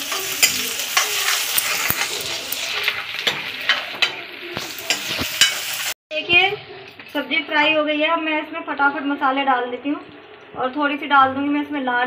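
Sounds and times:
vegetables sizzling in hot oil: 0.0s - 6.0s
ladle scraping and clinking on pan: 0.1s - 5.8s.

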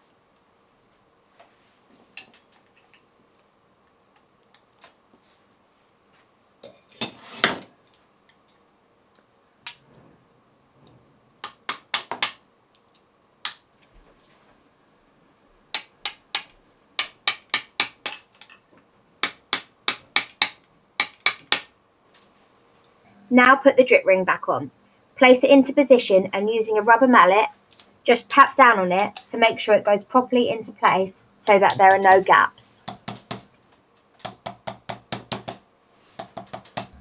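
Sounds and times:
hammer tapping metal punch: 15.7s - 18.6s, 19.2s - 21.8s, 36.2s - 37.0s.

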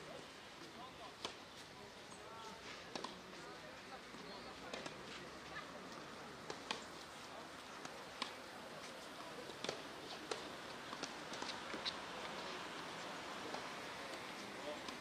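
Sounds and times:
low background hiss: 0.0s - 15.0s
tennis balls struck with rackets: 1.0s - 1.6s, 2.9s - 3.4s, 4.1s - 7.0s, 7.6s - 15.0s.

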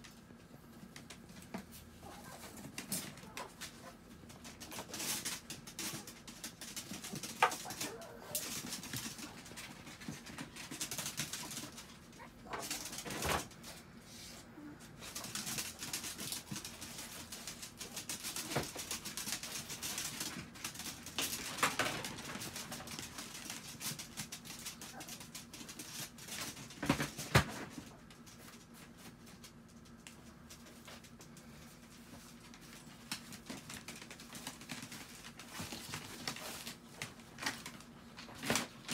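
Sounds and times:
paws scratching on plastic tarp: 30.5s - 38.9s.

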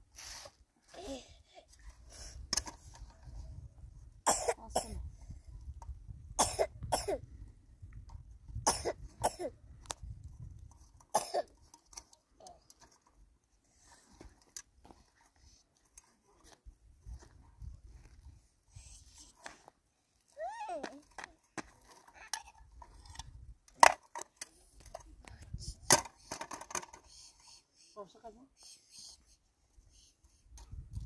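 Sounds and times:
person coughing: 4.3s - 5.0s, 6.4s - 7.2s, 11.2s - 11.5s.

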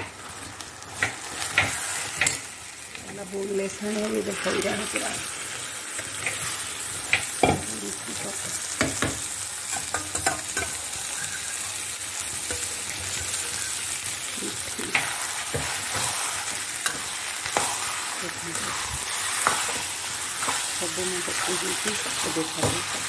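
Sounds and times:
meat sizzling in a pan: 0.0s - 23.0s
utensil scraping a pan: 9.8s - 11.8s.

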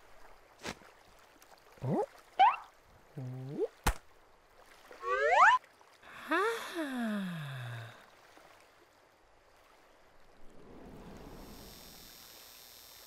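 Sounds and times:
cartoon character rising call: 5.0s - 5.6s
cartoon character breathy sigh: 6.1s - 8.0s.

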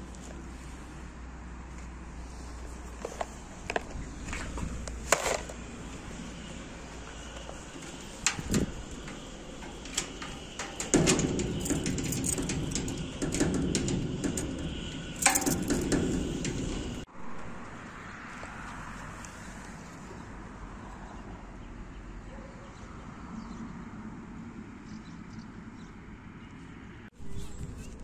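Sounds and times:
metal lever and lock rattling: 4.4s - 6.1s, 7.0s - 17.1s.

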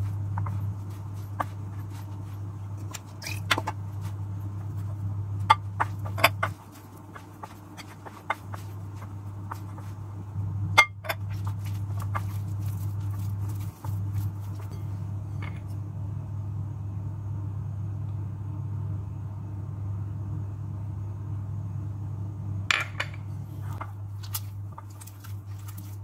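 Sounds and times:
hands working dough in bowl: 0.0s - 10.2s, 10.8s - 15.7s, 23.6s - 26.0s
steady low hum: 0.0s - 26.0s.

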